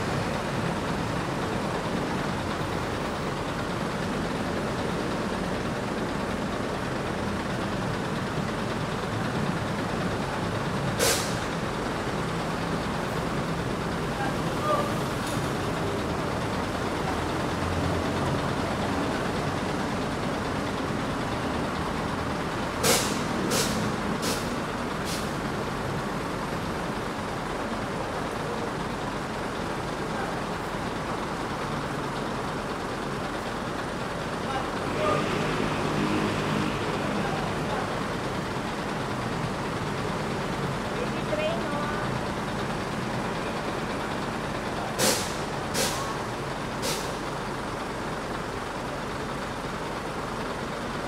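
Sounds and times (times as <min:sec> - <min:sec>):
bus diesel engine idling: 0:00.0 - 0:51.0
air release hisses: 0:22.8 - 0:24.5.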